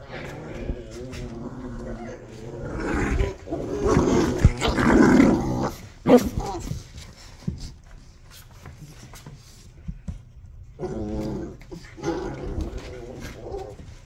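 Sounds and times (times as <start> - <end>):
dogs growling: 0.0 - 7.0, 10.7 - 14.0.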